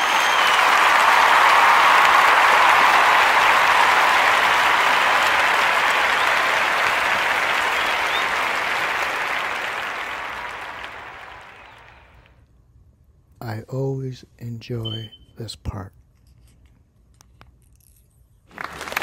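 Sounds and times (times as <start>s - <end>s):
applause: 0.0s - 12.4s, 18.5s - 19.0s.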